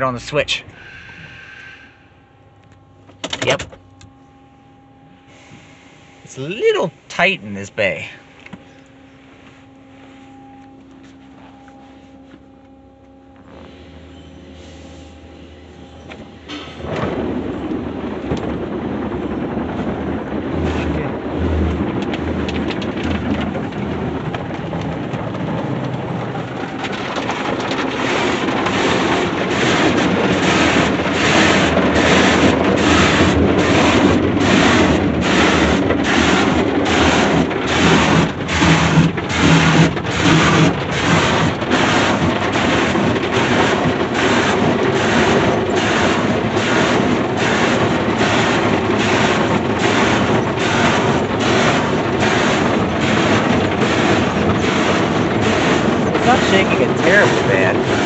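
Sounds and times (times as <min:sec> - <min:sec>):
water spraying: 0:27.9 - 0:58.0
cloth brushes scrubbing car: 0:28.0 - 0:58.0.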